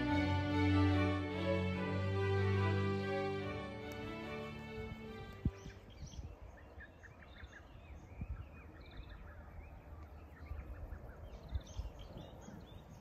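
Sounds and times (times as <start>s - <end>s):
small birds chirping: 3.8s - 13.0s.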